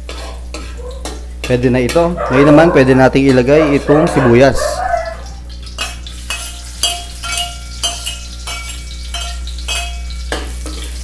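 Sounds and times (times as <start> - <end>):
onion sizzling in oil: 0.0 - 2.2, 5.0 - 11.0
steady low hum: 0.0 - 11.0
metal ladle clinking: 5.7 - 10.8.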